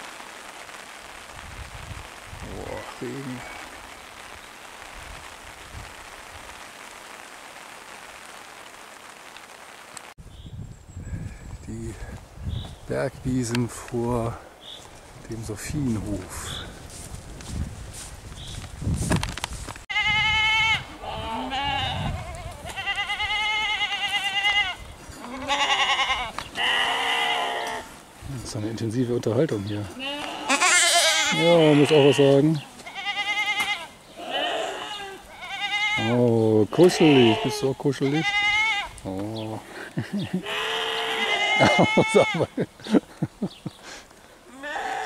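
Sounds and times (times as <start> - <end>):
rain falling on pond water: 0.0 - 10.2
goats bleating: 19.9 - 27.9, 29.8 - 39.0, 40.3 - 42.6, 44.5 - 45.0.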